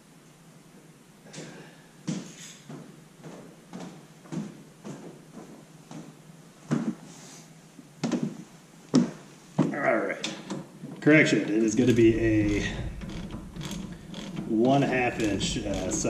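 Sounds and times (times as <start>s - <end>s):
knocks and clatter: 11.7s - 16.0s.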